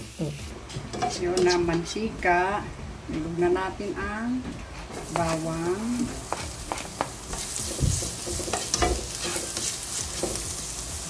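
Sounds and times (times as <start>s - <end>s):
spatula scraping and stirring: 4.7s - 10.8s
garlic sizzling in hot oil: 5.0s - 11.0s.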